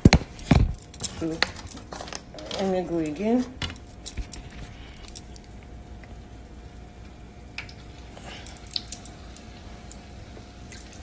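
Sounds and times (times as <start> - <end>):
low steady hum: 0.0 - 11.0
dough frying in hot oil: 3.9 - 11.0.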